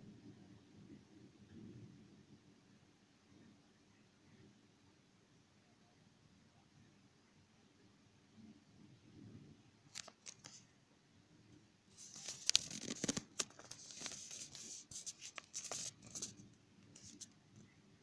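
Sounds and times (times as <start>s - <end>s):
phone handling rustle: 9.9s - 10.6s, 12.0s - 16.4s.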